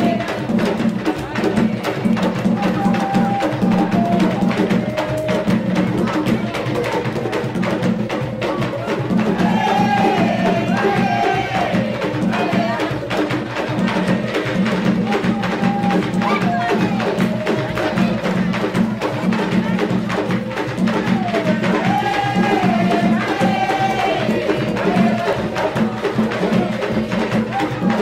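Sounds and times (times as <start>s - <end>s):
person singing: 0.0s - 7.3s
hand drums playing: 0.0s - 28.0s.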